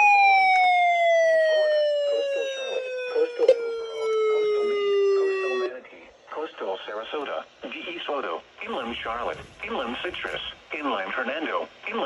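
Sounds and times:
siren-like warning tone: 0:00.0 - 0:05.8.

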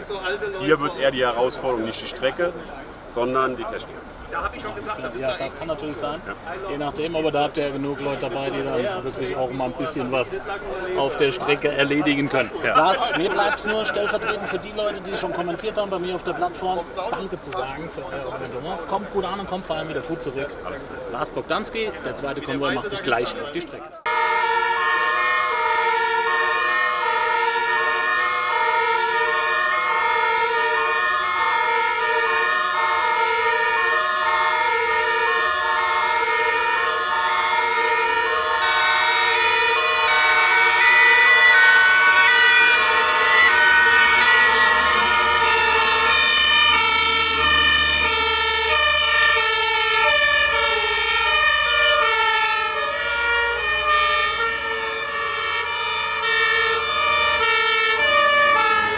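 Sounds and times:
heavy truck engines rumbling: 0:00.0 - 0:58.9
two-tone emergency sirens: 0:24.0 - 0:58.9.

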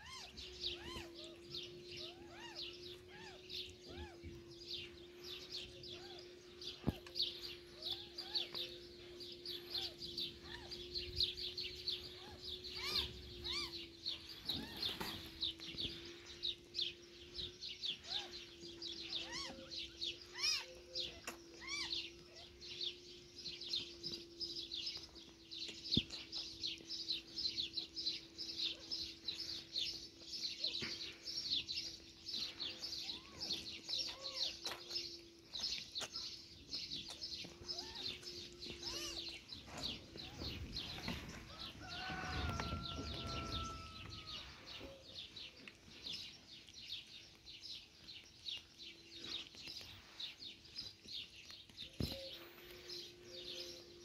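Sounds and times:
steady low hum: 0:00.0 - 0:47.9
small birds chirping: 0:00.0 - 0:54.0.

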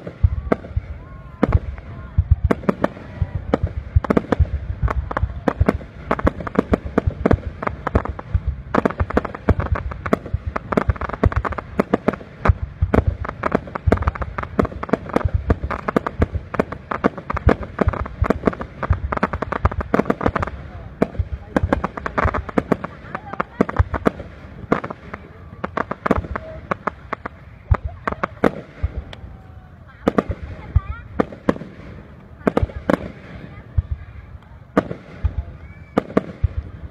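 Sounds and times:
low rumble of booms: 0:00.0 - 0:31.8
fireworks crackling: 0:00.0 - 0:36.9.

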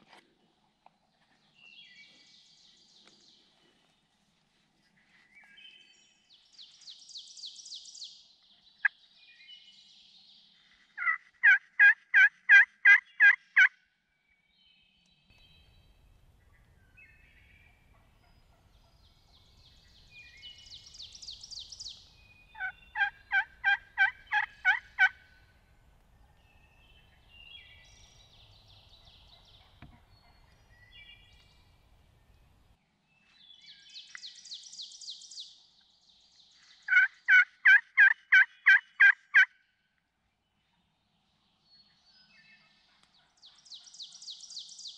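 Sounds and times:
distant wild turkeys calling: 0:11.0 - 0:13.7, 0:20.6 - 0:25.5, 0:36.9 - 0:39.6
turkey call yelps: 0:11.0 - 0:13.7, 0:22.6 - 0:25.2, 0:36.9 - 0:39.5.

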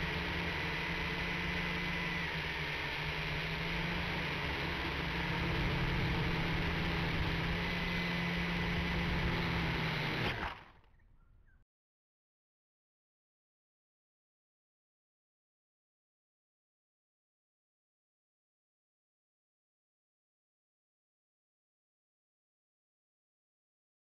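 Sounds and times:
toy quadcopter motors whirring: 0:00.0 - 0:10.7.

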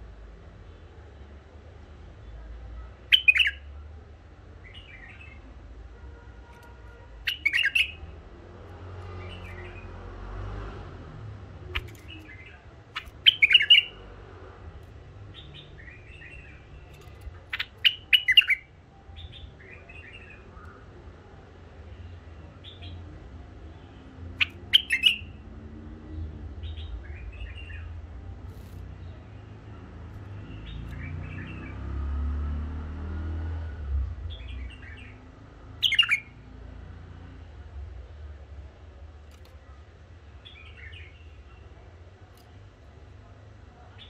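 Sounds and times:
bulbul singing warbled phrases: 0:03.1 - 0:03.7, 0:06.6 - 0:08.2, 0:11.5 - 0:14.1, 0:15.0 - 0:21.0, 0:23.8 - 0:25.4, 0:34.3 - 0:36.4
soft bird chattering: 0:03.1 - 0:03.7, 0:06.6 - 0:08.2, 0:11.6 - 0:14.1, 0:14.8 - 0:20.8, 0:24.3 - 0:25.4, 0:35.8 - 0:36.4.

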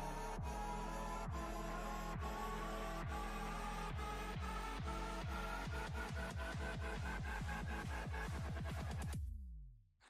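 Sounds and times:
electronic music: 0:00.0 - 0:09.2.

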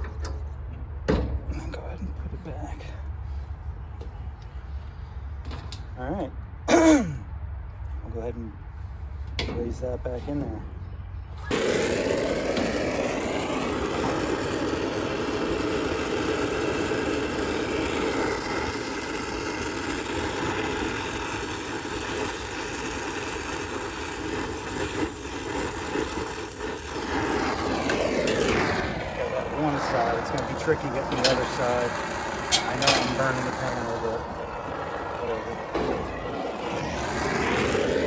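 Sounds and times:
torch flame rushing: 0:11.3 - 0:38.0.

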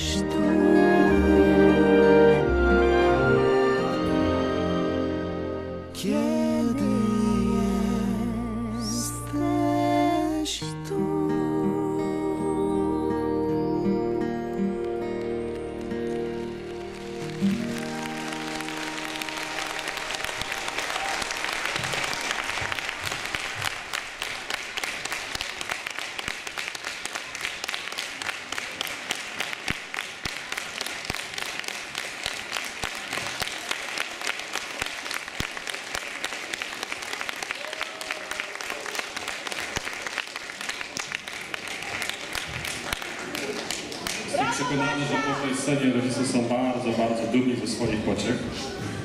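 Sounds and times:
music notes: 0:00.0 - 0:22.1
audience applauding: 0:14.8 - 0:45.8.

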